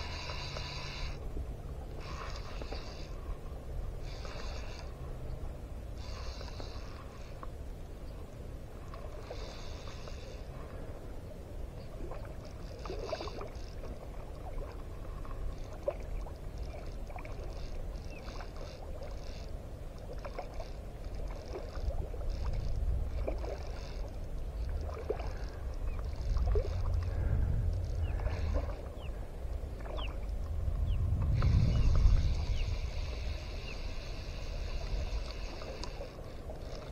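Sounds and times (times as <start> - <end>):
water lapping around a boat: 0.0 - 36.9
low rumble: 22.0 - 35.5.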